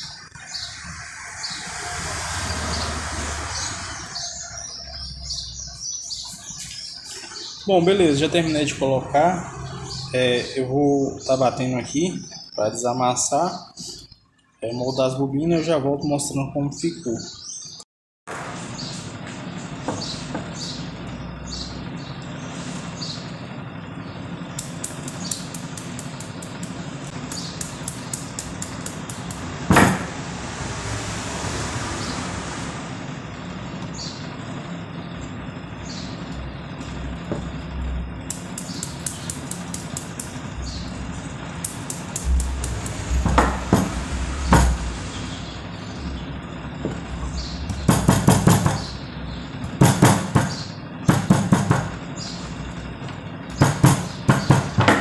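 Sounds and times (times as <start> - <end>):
mallet tapping on copper coils: 24.6 - 29.4, 38.3 - 40.4, 41.6 - 43.9.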